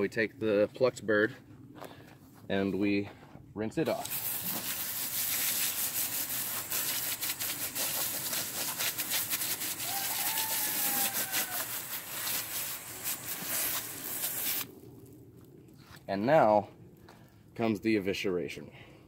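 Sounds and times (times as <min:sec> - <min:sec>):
hose spray hissing and spattering: 0:03.9 - 0:14.7.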